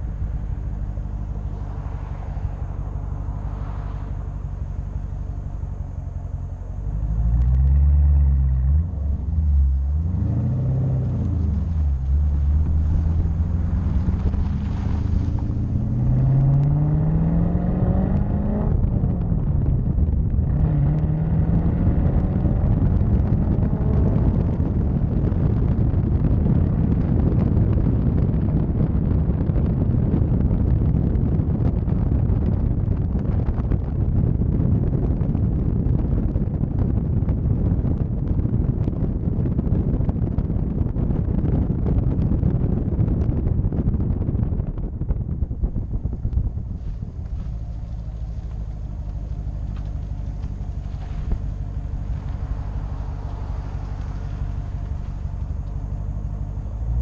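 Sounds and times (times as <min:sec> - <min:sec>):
car engine revving: 0:00.0 - 0:26.0, 0:44.4 - 0:57.0
road noise: 0:00.0 - 0:57.0.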